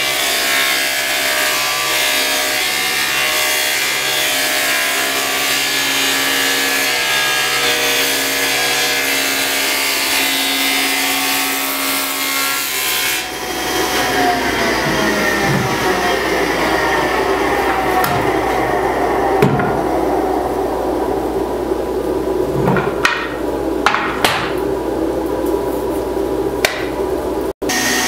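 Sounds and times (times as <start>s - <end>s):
table saw cutting wood: 0.0s - 21.7s, 27.6s - 28.0s.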